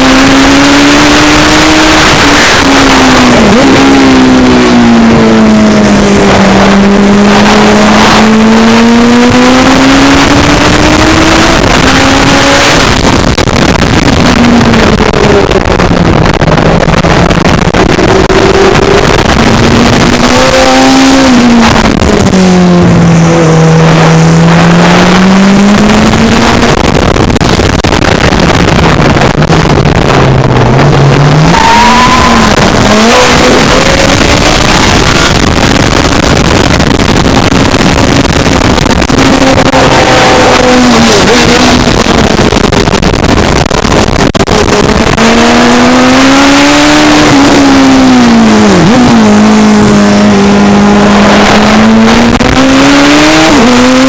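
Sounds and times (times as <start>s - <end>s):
sidecar engine at speed: 0.0s - 54.0s
wind and road noise: 0.0s - 54.0s.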